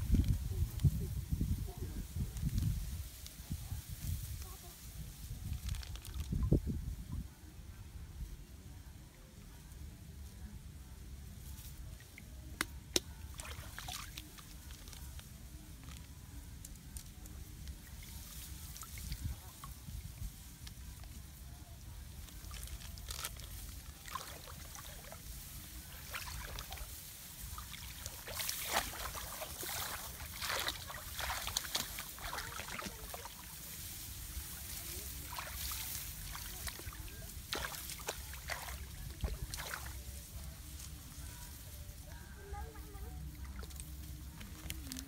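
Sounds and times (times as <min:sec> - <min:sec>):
rice stalks rustling: 0:00.0 - 0:06.7, 0:13.3 - 0:45.0
muddy water sloshing: 0:13.2 - 0:15.2, 0:22.3 - 0:40.7, 0:43.2 - 0:45.0.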